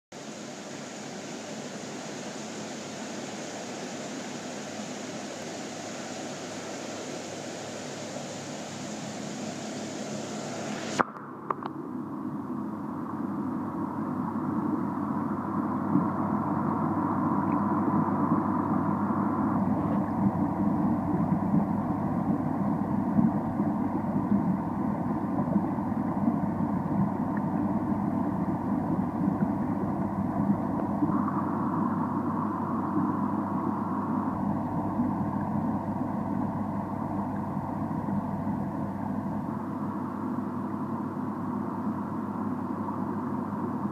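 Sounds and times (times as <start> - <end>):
mechanical hum: 0.1 - 43.9
faint rushing noise: 0.2 - 11.5.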